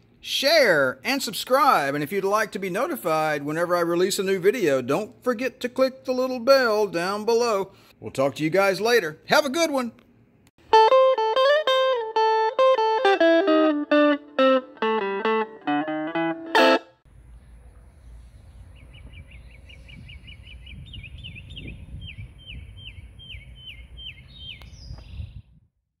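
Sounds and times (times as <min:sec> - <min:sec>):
electric guitar music: 0:10.6 - 0:17.0
wind rumble on microphone: 0:17.3 - 0:25.9
bird chirping rapidly: 0:18.1 - 0:25.5.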